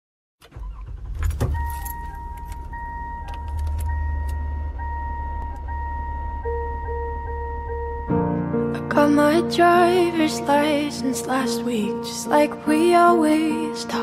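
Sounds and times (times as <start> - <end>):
car engine running low: 0.4 - 8.7
keys jangling: 1.2 - 4.0
car warning chime: 1.2 - 8.4
lower beeping tone: 1.4 - 9.0.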